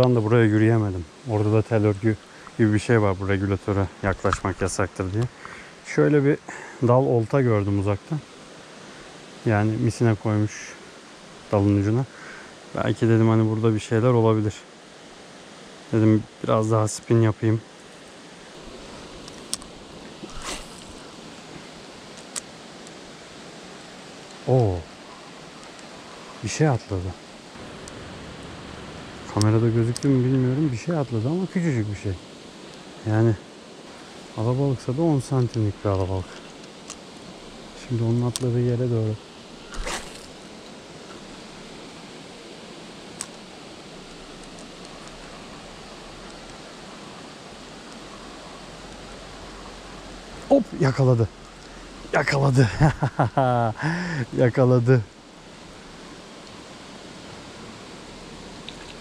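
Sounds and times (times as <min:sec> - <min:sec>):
flowing water rushing: 0:00.0 - 0:53.0, 0:53.7 - 0:59.0
fishing rod cast swish: 0:20.3 - 0:21.0, 0:39.7 - 0:40.4
faint ticks: 0:35.4 - 0:37.3, 0:51.4 - 0:51.9, 0:58.6 - 0:59.0.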